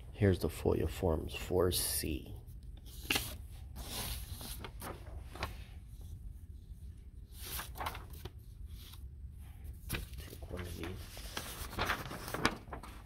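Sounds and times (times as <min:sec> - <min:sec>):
paper sheets rustling: 0:02.8 - 0:06.2, 0:07.3 - 0:13.0.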